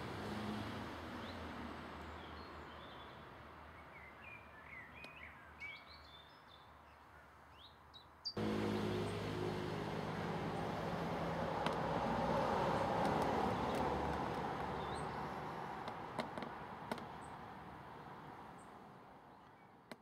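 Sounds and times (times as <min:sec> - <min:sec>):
distant road traffic rumble: 0:00.0 - 0:05.6, 0:08.4 - 0:20.0
small birds chirping: 0:03.8 - 0:09.1, 0:12.7 - 0:15.4
engine-like hum: 0:08.4 - 0:16.3.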